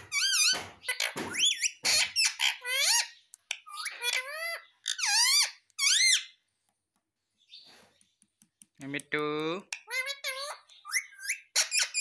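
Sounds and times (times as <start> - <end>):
parakeet high-pitched calls: 0.1 - 6.4, 9.7 - 12.0.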